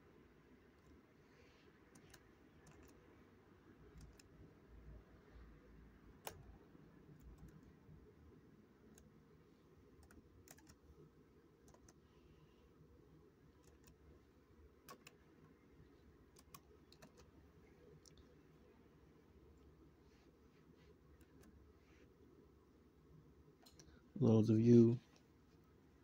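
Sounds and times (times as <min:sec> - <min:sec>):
low room hum: 0:00.0 - 0:26.0
computer keyboard clicks: 0:01.9 - 0:03.0, 0:04.0 - 0:04.3, 0:06.2 - 0:06.5, 0:10.0 - 0:10.8, 0:11.6 - 0:12.0, 0:13.6 - 0:14.0, 0:14.8 - 0:15.2, 0:16.4 - 0:17.3.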